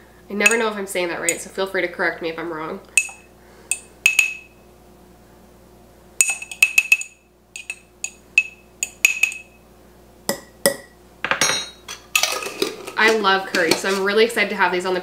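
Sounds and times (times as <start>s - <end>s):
metal spoon clinking on glass jars: 3.0s - 4.5s, 6.2s - 9.5s, 10.3s - 14.0s.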